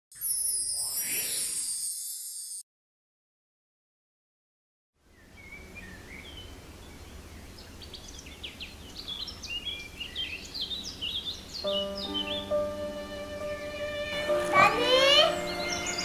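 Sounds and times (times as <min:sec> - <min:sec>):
birds chirping: 0:05.1 - 0:16.0.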